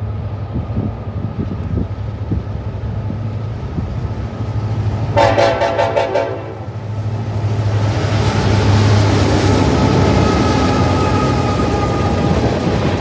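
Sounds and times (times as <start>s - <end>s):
locomotive rumble: 0.0s - 13.0s
locomotive horn: 5.2s - 6.8s.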